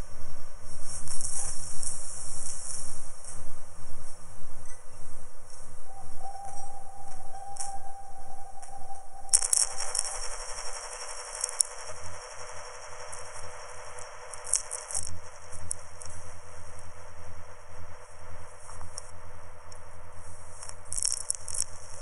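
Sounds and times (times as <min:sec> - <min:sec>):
low sustained tone: 0:04.6 - 0:22.0.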